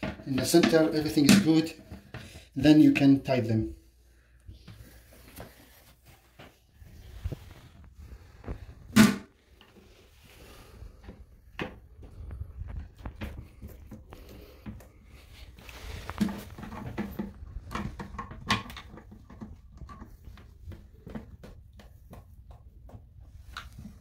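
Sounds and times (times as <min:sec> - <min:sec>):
plastic clicks and knocks: 0:16.2 - 0:23.7.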